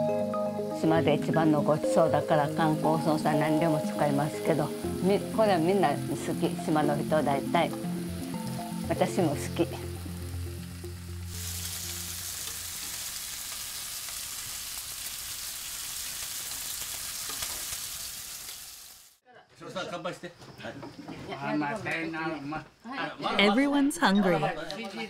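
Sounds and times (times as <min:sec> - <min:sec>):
pork sizzling in a pan: 0:02.3 - 0:19.2.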